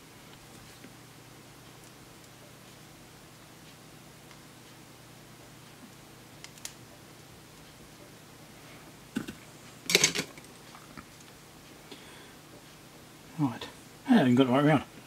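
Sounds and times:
objects clattering on bench: 9.2 - 10.4.

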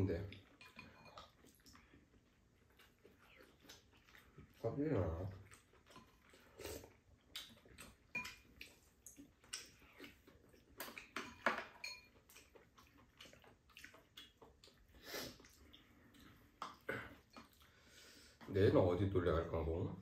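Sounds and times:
utensils clinking against bowls: 0.4 - 1.4, 10.8 - 12.4.

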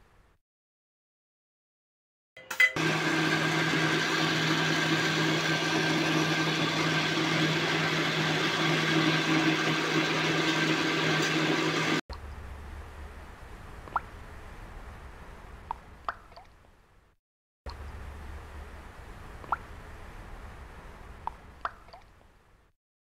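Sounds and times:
electric blender running: 2.8 - 12.0.

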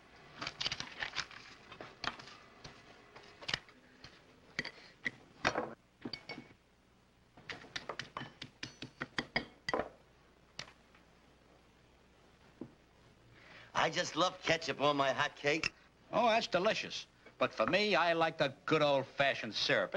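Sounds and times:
tableware clicks and knocks: 4.6 - 6.6, 7.4 - 10.0.

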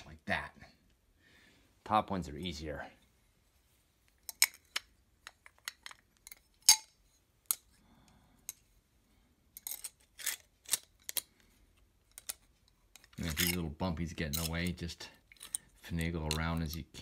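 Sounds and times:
glass pieces clinking: 9.6 - 11.2, 13.0 - 13.6.

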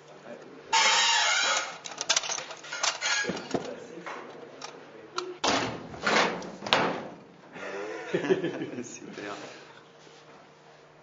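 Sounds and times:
objects clicking and knocking: 1.6 - 4.8.

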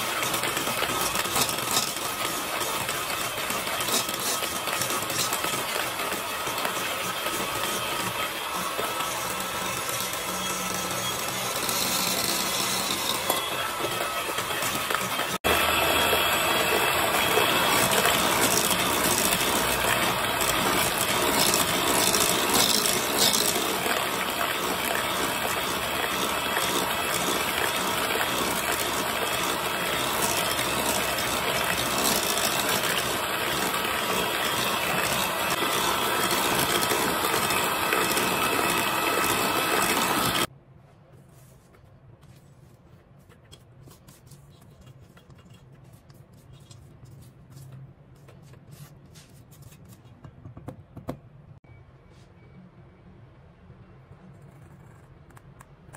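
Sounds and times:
electric hand mixer whirring: 0.0 - 40.5
spatula scraping bowl: 0.0 - 40.5.

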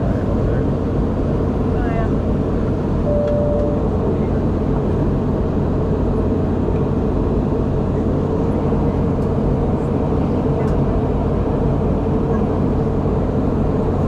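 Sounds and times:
constant hum: 0.0 - 14.0
jet engines: 0.0 - 14.0
brief steady tone: 3.0 - 4.3.

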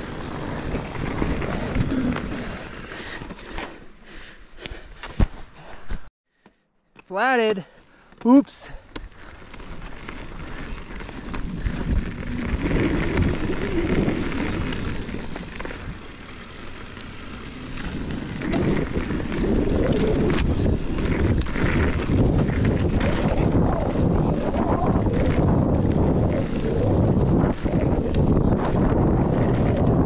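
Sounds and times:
bike tyres rolling over dirt: 0.0 - 4.8, 8.0 - 30.0
wind on microphone: 11.2 - 16.0, 17.8 - 30.0.

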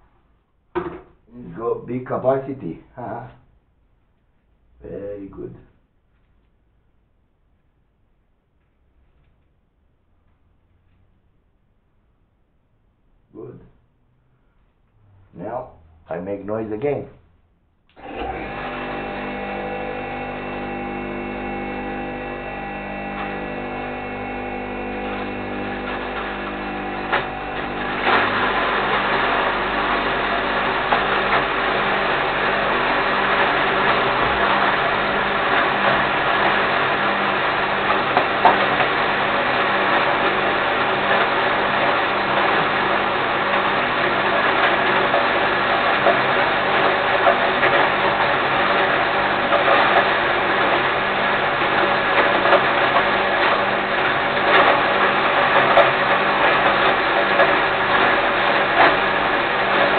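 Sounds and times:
grain mill motor humming: 18.0 - 59.9.

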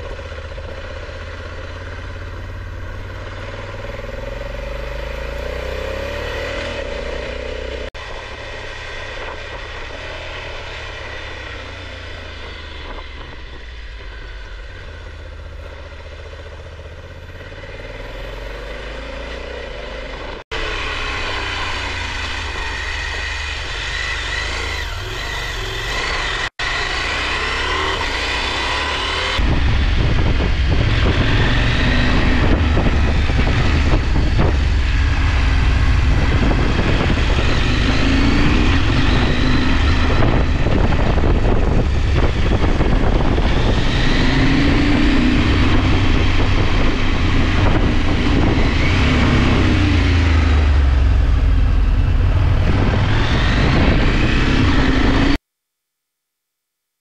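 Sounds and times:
motorcycle engine running: 0.0 - 55.4.

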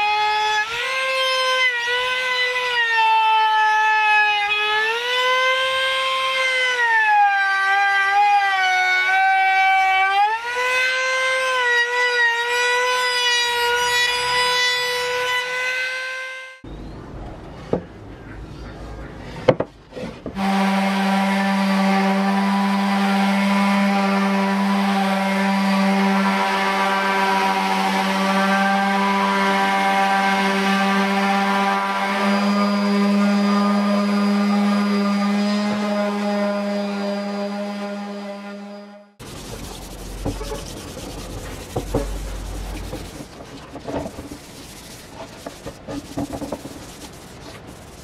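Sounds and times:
knocks: 19.5 - 20.4
orbital sander on wood: 20.4 - 48.0.

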